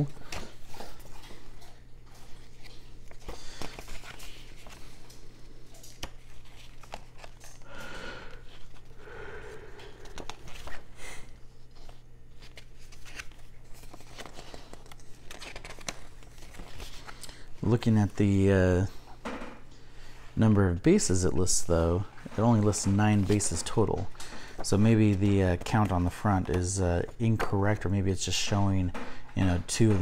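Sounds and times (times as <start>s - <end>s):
paper rustling and crinkling: 0.0s - 7.6s, 9.9s - 17.9s, 21.4s - 28.5s
steady low hum: 0.0s - 30.0s.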